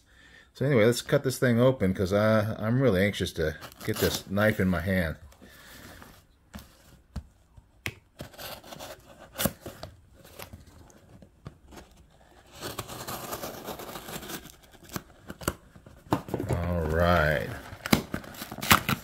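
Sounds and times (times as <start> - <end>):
knife cutting packing tape: 12.5 - 15.6, 17.6 - 19.0.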